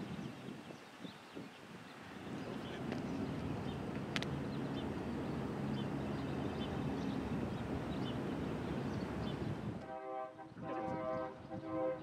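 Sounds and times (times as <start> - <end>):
vehicle engine humming: 2.2 - 9.8.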